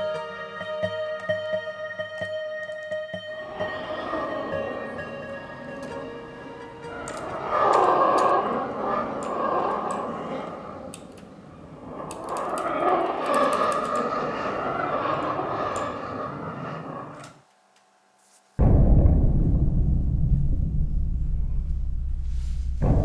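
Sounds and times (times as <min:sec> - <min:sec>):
sharp clicks: 0:12.0 - 0:14.2
rushing rumbling noise: 0:18.6 - 0:23.0.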